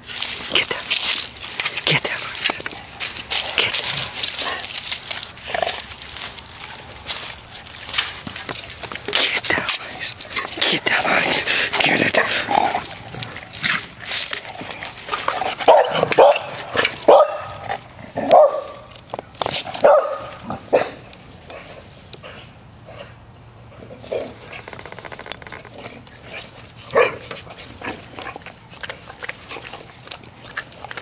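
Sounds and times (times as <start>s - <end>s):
dog barking and yipping: 15.6s - 18.9s, 19.8s - 21.0s, 26.9s - 27.2s.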